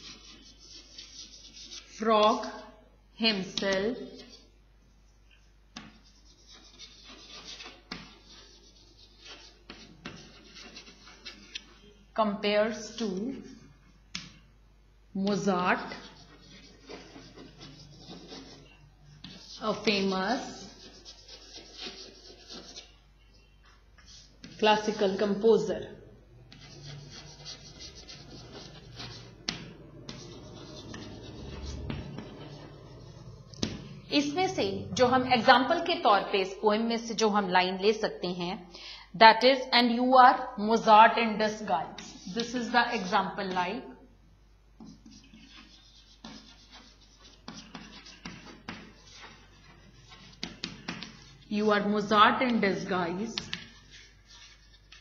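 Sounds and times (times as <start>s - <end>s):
chalk scratching on blackboard: 0.0s - 2.6s, 3.3s - 4.6s, 5.4s - 12.0s, 15.3s - 23.0s, 23.6s - 35.8s, 41.3s - 43.8s, 44.8s - 55.0s
chalk tapping on board: 5.7s - 11.8s, 15.3s - 22.9s, 26.5s - 33.9s, 44.8s - 51.4s, 53.2s - 55.0s.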